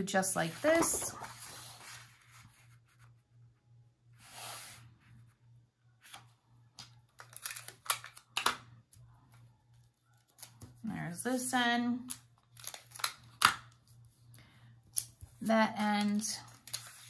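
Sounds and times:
paper rustling: 0.4s - 2.8s.

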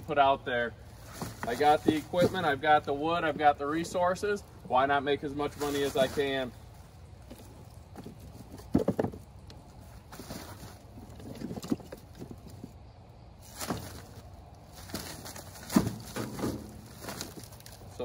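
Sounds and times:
wooden chunks clunking together: 1.0s - 4.2s, 7.2s - 12.8s, 13.4s - 17.9s.

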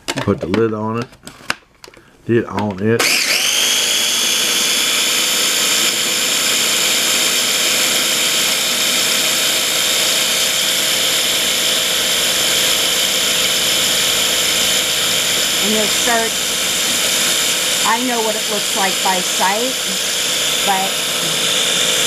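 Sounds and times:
food processor motor whining: 3.0s - 22.0s.

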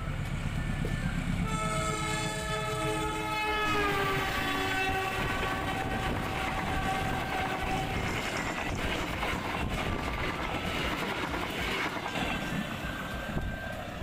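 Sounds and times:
wheels rattling on track: 3.9s - 14.0s.

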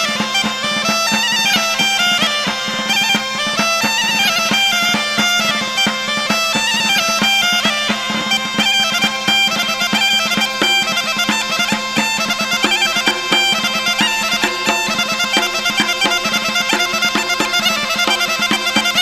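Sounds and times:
quick instrumental melody: 9.6s - 19.0s.

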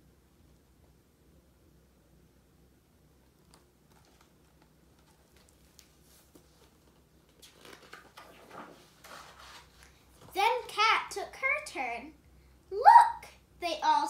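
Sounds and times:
rustling and soft clicks: 3.2s - 10.7s
book pages turning: 3.3s - 10.7s.

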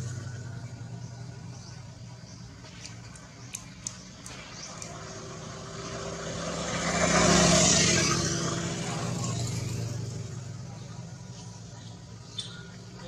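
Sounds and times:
motor vehicle driving past: 0.0s - 13.0s.

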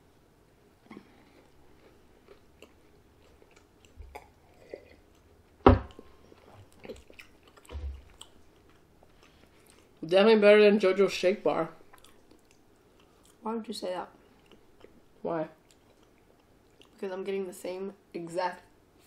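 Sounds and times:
chewing a soft cookie: 0.8s - 5.6s, 6.2s - 10.0s, 11.8s - 13.4s, 14.2s - 17.1s.

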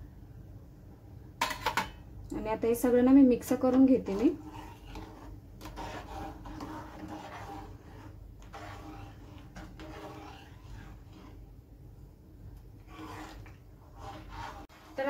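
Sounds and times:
spoon scraping and clinking on pan: 1.4s - 2.0s
spoon stirring milk: 3.4s - 15.0s.

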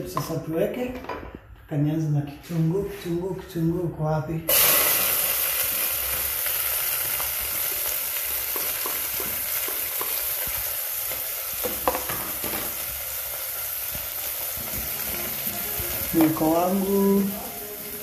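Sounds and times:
onions sizzling in hot oil: 4.5s - 18.0s.

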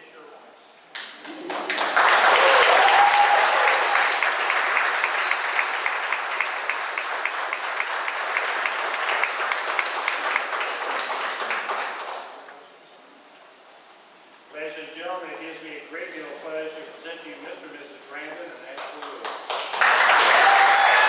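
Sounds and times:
crowd applauding: 1.0s - 12.4s, 19.0s - 21.0s
person cheering: 2.3s - 4.1s, 20.2s - 21.0s.

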